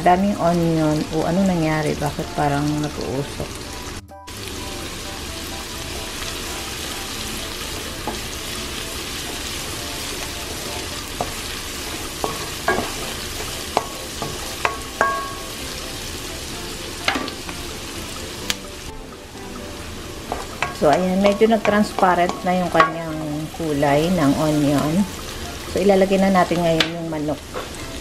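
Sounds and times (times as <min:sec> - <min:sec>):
onion sizzling in oil: 0:00.0 - 0:28.0
wooden spatula knocking pan: 0:10.5 - 0:15.6, 0:17.0 - 0:17.6, 0:20.2 - 0:23.5.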